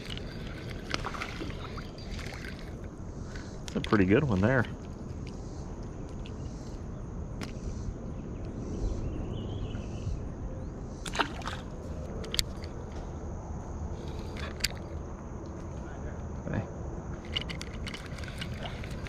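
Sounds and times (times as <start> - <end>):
light clicks handling fish: 0.0 - 4.0
low outdoor background noise: 0.0 - 19.0.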